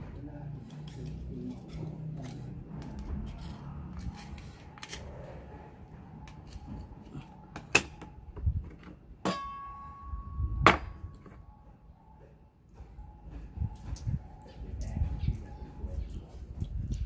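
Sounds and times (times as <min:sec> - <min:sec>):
knife scraping oyster shell: 0:00.7 - 0:05.5.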